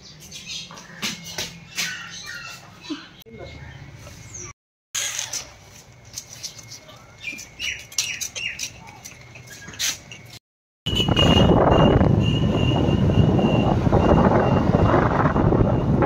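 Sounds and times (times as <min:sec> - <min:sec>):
birds chirping: 0:00.0 - 0:04.6, 0:06.4 - 0:10.3
wind rushing over microphone: 0:10.9 - 0:16.0.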